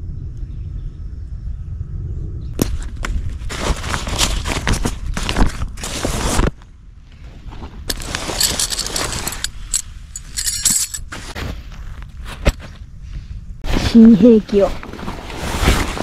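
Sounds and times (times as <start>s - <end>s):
low rumble: 0.0s - 6.0s
backpack fabric rustling: 3.3s - 6.5s, 7.4s - 11.9s, 13.6s - 16.0s.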